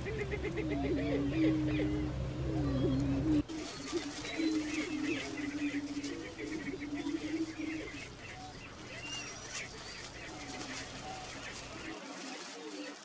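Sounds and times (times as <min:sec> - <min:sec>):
low cooing boom: 0:00.0 - 0:03.5
birds cackling and whooping: 0:00.0 - 0:13.0.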